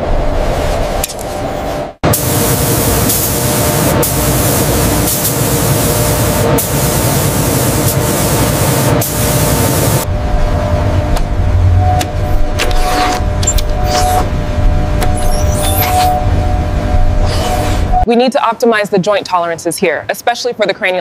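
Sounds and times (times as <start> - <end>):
paint spray gun hissing: 2.1 - 10.0.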